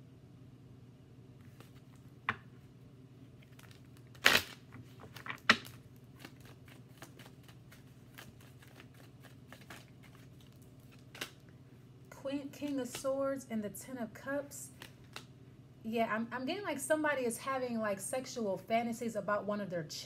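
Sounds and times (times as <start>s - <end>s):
cards being shuffled: 1.4s - 2.4s, 3.4s - 11.5s, 14.7s - 15.3s.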